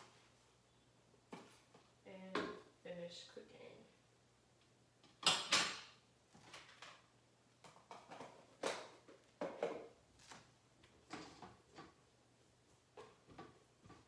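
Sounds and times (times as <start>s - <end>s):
knocks and clatters of utensils: 5.1s - 7.0s, 7.6s - 10.0s.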